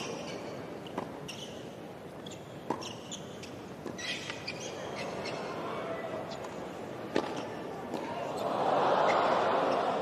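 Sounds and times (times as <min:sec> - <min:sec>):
sneaker squeaks: 0:00.0 - 0:05.5
tennis ball struck by racket: 0:07.1 - 0:08.0.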